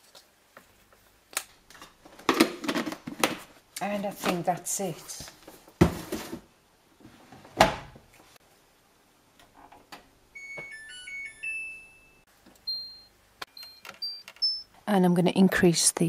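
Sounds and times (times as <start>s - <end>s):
electronic power-on chime melody: 10.4s - 14.7s
button-press beep: 12.7s - 14.7s.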